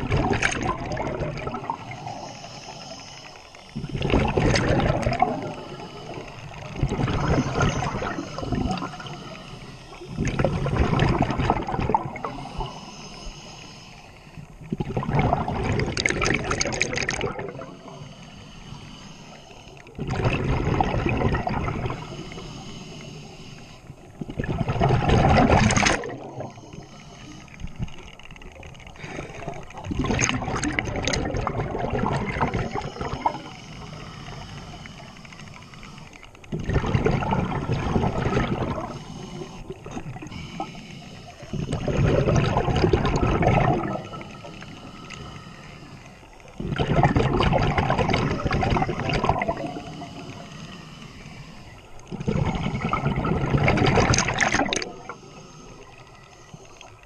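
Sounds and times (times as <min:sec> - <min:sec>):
regulator exhaust bubbles underwater: 0:00.0 - 0:03.0, 0:03.7 - 0:12.8, 0:14.5 - 0:18.0, 0:19.9 - 0:22.4, 0:24.0 - 0:26.9, 0:27.6 - 0:35.1, 0:36.3 - 0:40.7, 0:41.4 - 0:45.3, 0:46.4 - 0:50.5, 0:51.7 - 0:56.2.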